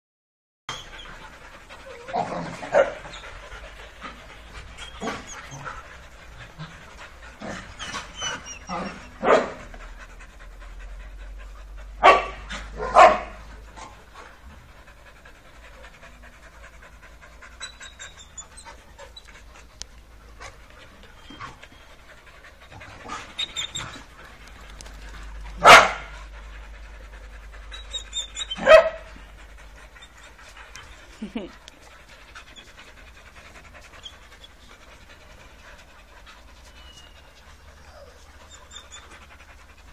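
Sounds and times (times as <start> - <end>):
dogs panting: 0.7 - 39.9
dogs barking: 2.0 - 3.1, 7.4 - 9.7, 12.0 - 14.0, 25.6 - 26.2, 28.5 - 29.3.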